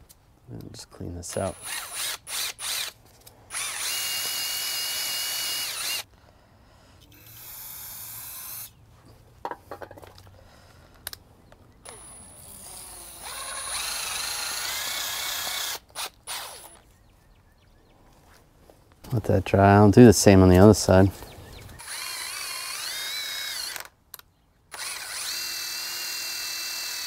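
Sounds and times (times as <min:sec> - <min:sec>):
impact driver spinning wire brush: 0:01.3 - 0:06.1, 0:21.8 - 0:23.9.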